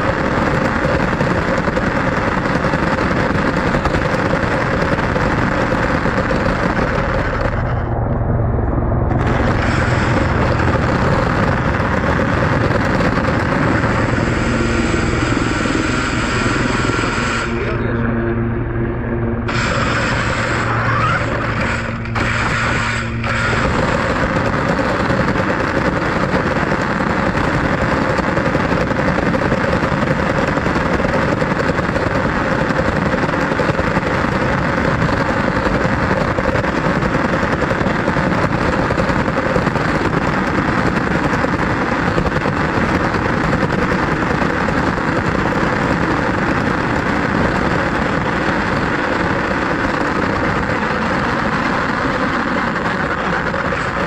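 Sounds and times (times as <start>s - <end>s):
radio-controlled car driving: 19.5s - 39.4s, 47.0s - 54.0s.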